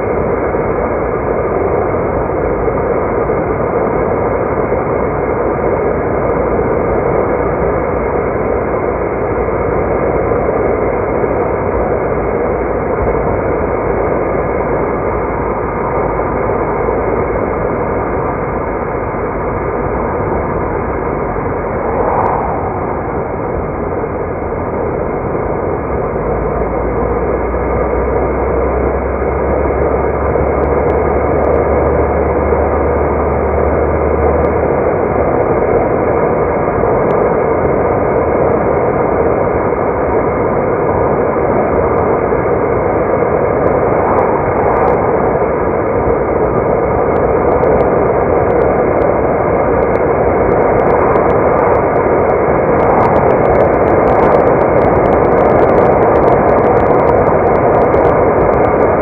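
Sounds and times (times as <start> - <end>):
low hum: 0.0 - 39.0, 40.2 - 59.0
tyre and road noise: 13.0 - 34.5, 41.8 - 59.0.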